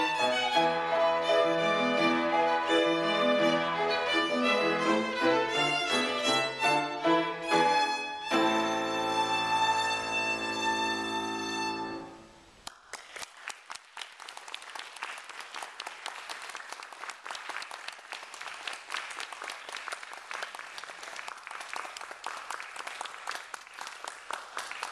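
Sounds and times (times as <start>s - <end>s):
audience applauding: 12.6s - 24.9s.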